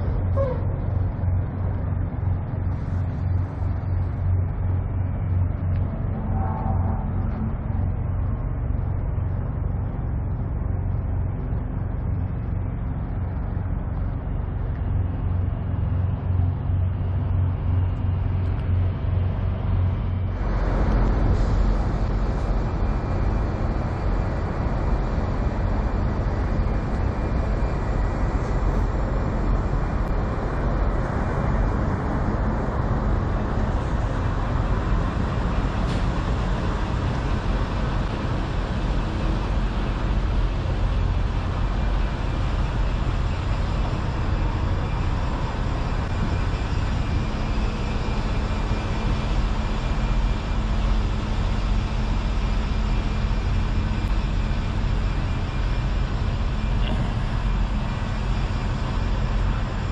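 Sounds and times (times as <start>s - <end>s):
diesel truck engines idling: 0.0s - 59.9s.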